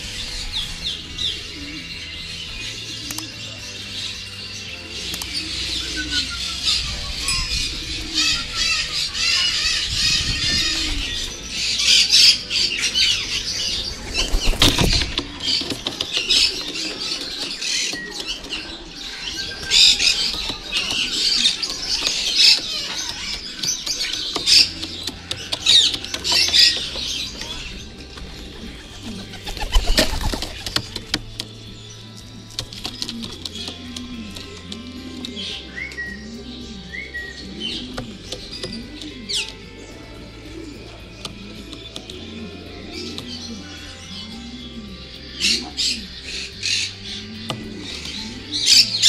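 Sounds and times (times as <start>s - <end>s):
small birds chirping: 0.0s - 49.0s
pigeons flapping wings: 13.9s - 18.7s, 28.5s - 31.5s.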